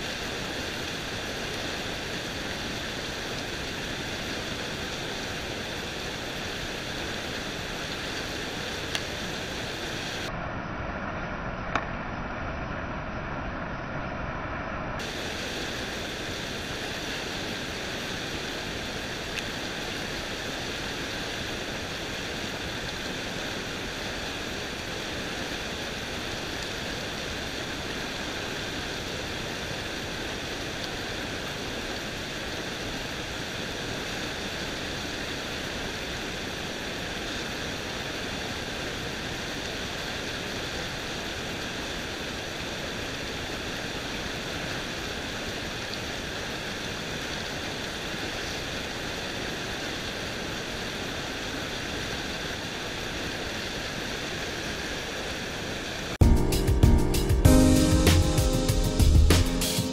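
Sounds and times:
water rushing over rocks: 0.0 - 13.2, 15.0 - 56.2.

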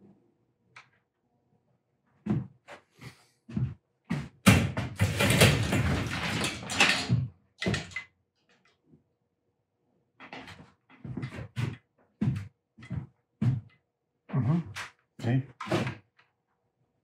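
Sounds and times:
objects clattering and rummaging: 4.6 - 8.7.

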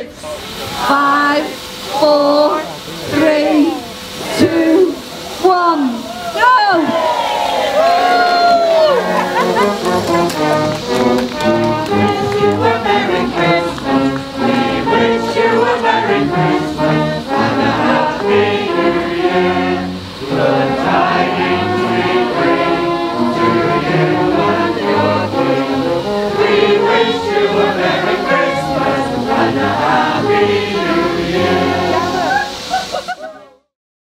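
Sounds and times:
group of voices singing: 0.0 - 5.1, 7.7 - 33.0
brass band playing: 8.8 - 32.7.

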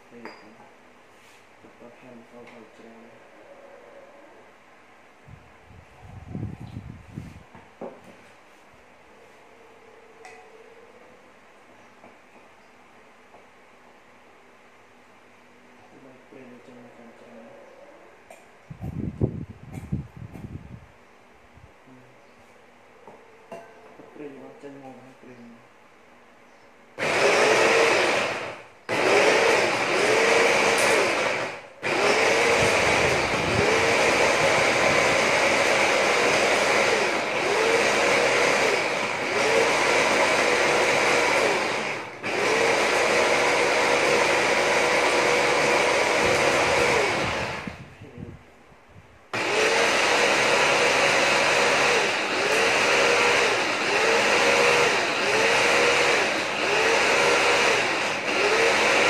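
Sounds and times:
food chopper motor whine: 27.0 - 47.9, 49.4 - 59.0.

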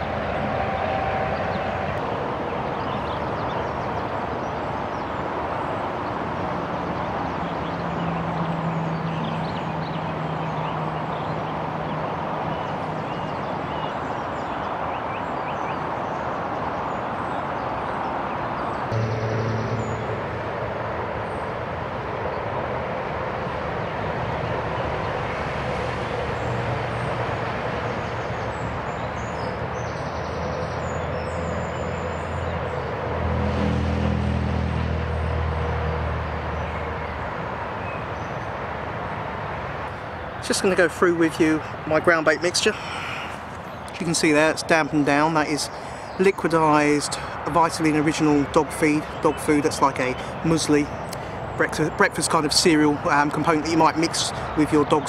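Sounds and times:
road traffic hum: 0.0 - 55.0
faint high chirps: 18.9 - 20.8.

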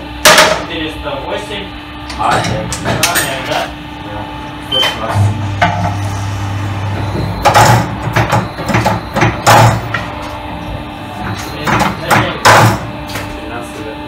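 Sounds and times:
low motor hum: 3.7 - 12.1
loud noisy machine bursts: 4.5 - 10.2.

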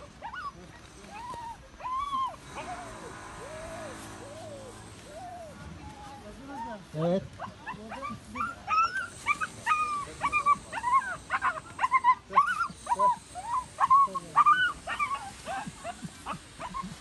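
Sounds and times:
puppy whimpering and yelping: 0.0 - 3.0, 7.4 - 17.0.

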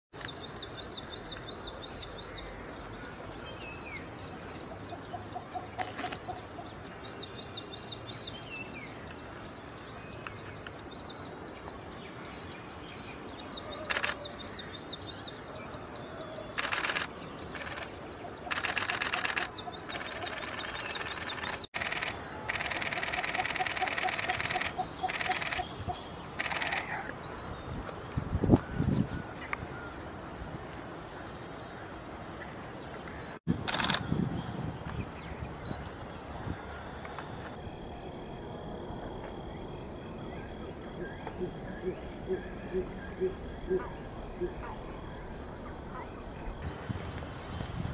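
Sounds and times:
bursts of rapid clicking: 13.9 - 14.2, 16.6 - 25.7, 26.4 - 27.0, 33.6 - 34.0
fast high chirping: 16.6 - 25.6.

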